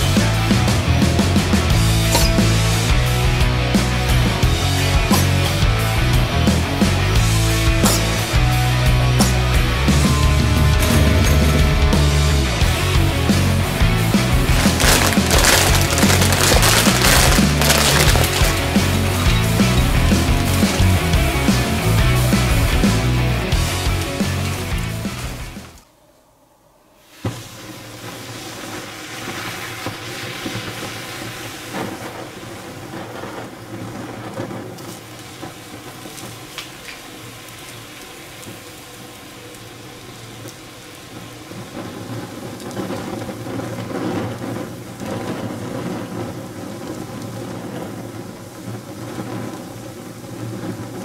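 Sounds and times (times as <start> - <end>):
flames burning: 12.4 - 25.8, 27.1 - 51.0
popcorn crackling and sizzling: 14.2 - 25.8, 27.0 - 51.0.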